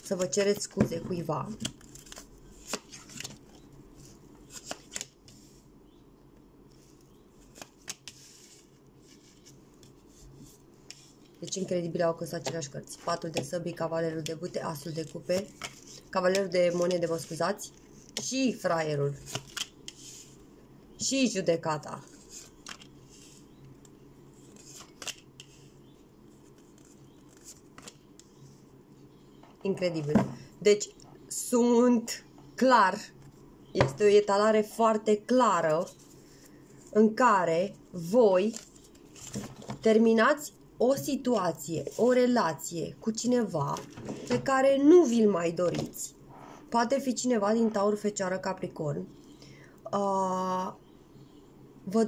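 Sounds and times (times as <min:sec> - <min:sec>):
cards sliding and rustling: 0:24.4 - 0:25.7, 0:26.3 - 0:28.3.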